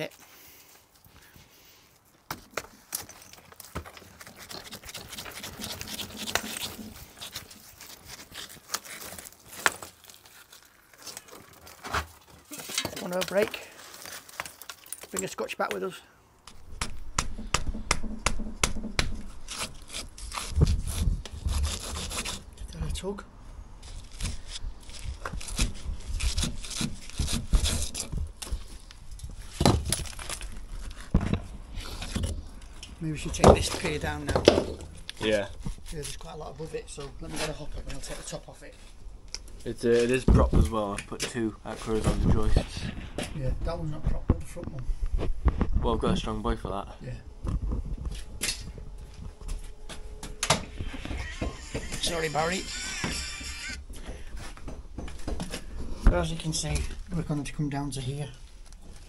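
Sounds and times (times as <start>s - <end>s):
brick and mortar scraping: 2.5s - 15.9s, 16.5s - 22.7s, 23.8s - 39.0s
brick knocking against brick: 16.5s - 19.8s.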